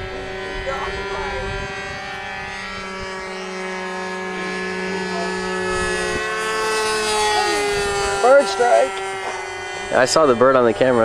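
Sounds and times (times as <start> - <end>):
model airplane engine buzzing: 0.0 - 11.0.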